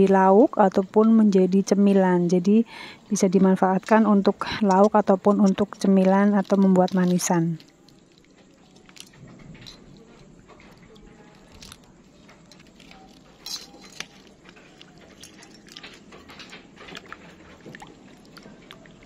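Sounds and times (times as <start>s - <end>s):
water sloshing in a metal bowl: 3.8s - 19.0s.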